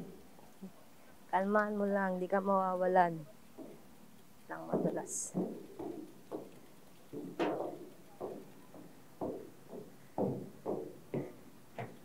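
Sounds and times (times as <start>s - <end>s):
hollow footsteps on pontoon deck: 3.5s - 4.0s, 4.6s - 12.0s.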